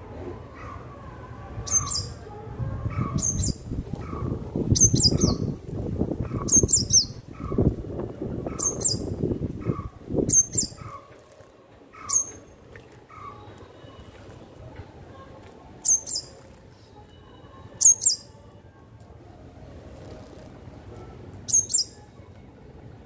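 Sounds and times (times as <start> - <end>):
high bird chirp: 3.0 - 5.6, 6.2 - 7.7, 8.5 - 11.0, 12.0 - 12.5, 15.8 - 16.5, 17.8 - 18.3, 21.5 - 22.0.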